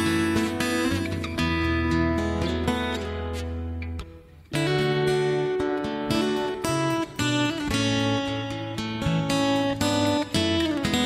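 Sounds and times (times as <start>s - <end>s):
guitar playing held chords: 0.0s - 11.0s.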